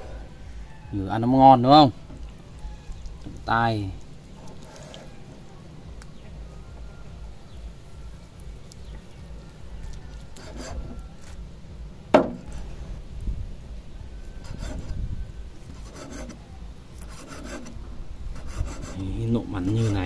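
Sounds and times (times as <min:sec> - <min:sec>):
knife slicing on wooden board: 0:10.3 - 0:11.4
sharp knock: 0:12.2 - 0:12.5.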